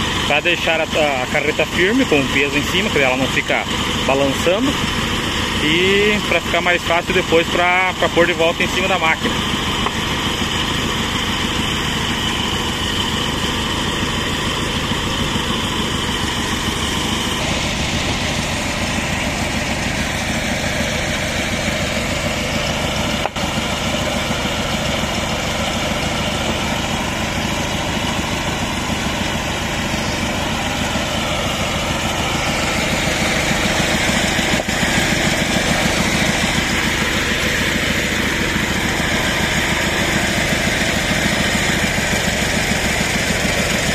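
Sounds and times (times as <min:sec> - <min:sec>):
bandsaw mill engine running: 0:00.0 - 0:43.9.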